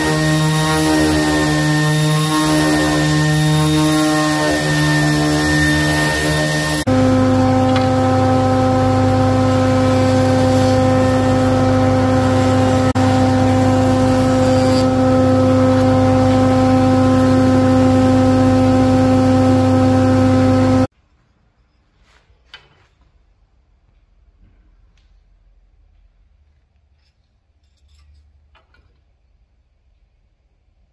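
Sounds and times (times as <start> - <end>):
spindle moulder machine hum: 0.0 - 20.9.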